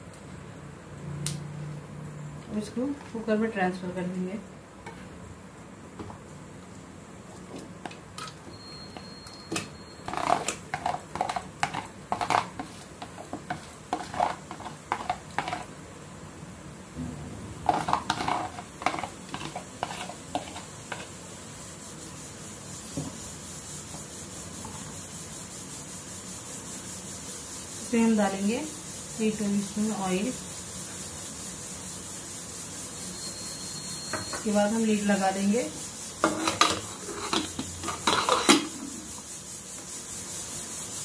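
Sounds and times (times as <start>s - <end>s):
spoon scraping plastic bowl: 9.6s - 15.7s, 17.6s - 21.2s, 36.2s - 38.7s.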